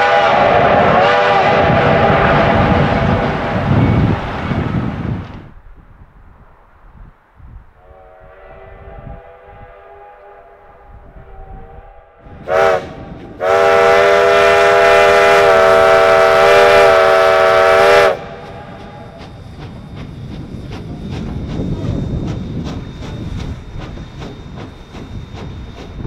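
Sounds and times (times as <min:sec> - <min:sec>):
steam locomotive whistle: 0:00.0 - 0:04.2, 0:07.8 - 0:19.4
train rumbling: 0:00.0 - 0:26.0
rhythmic wheel clicking: 0:18.8 - 0:26.0.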